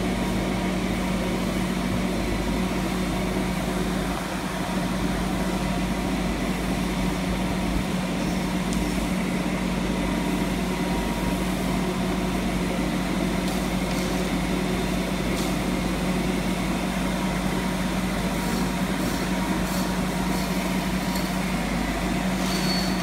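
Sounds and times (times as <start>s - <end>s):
truck mechanical drone: 0.0s - 23.0s.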